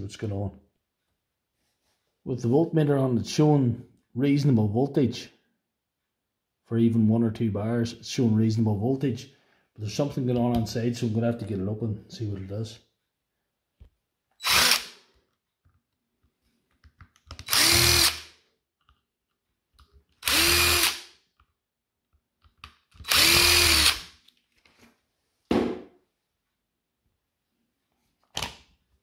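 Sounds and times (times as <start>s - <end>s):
cordless power driver spinning: 17.4s - 18.2s, 20.2s - 21.0s, 23.0s - 24.1s.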